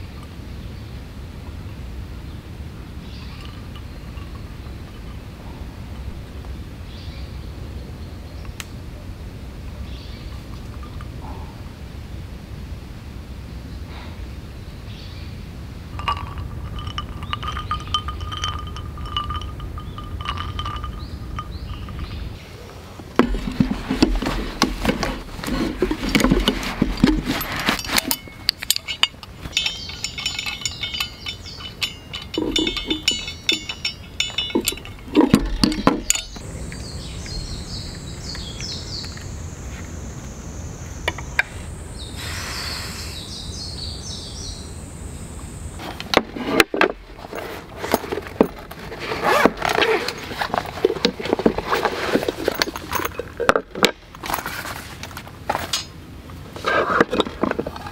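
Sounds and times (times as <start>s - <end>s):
metal parts clinking on wood: 3.2s - 5.3s, 16.0s - 22.4s, 23.2s - 37.4s, 46.0s - 55.9s, 56.6s - 57.9s
cloth pouch rustling: 23.2s - 28.4s, 47.3s - 52.8s.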